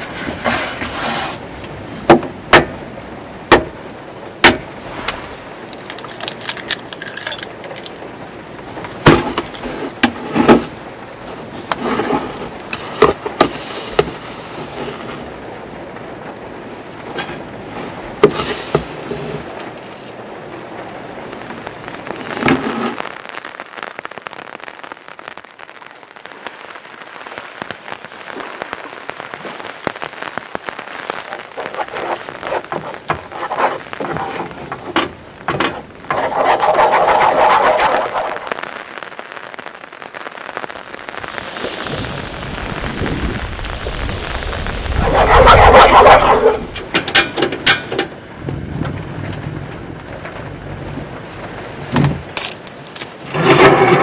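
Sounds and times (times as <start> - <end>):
falling rain hiss: 0.0 - 54.0.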